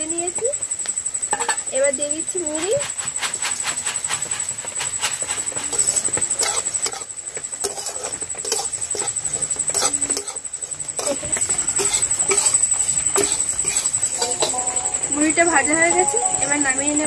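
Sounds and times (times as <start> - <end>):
rice grains rattling against pan: 1.3 - 15.6
metal spatula scraping wok: 2.4 - 16.5.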